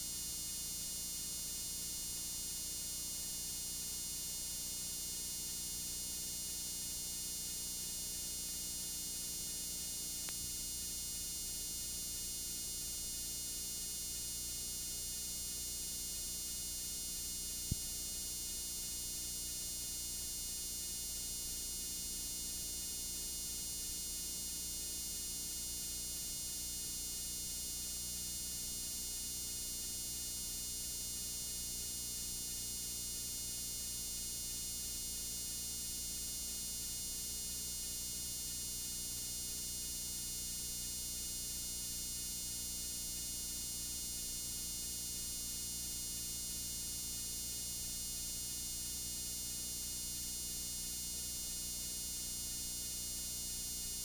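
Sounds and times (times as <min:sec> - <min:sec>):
electrical hum and hiss: 0:00.0 - 0:54.0
faint click: 0:17.7 - 0:17.9.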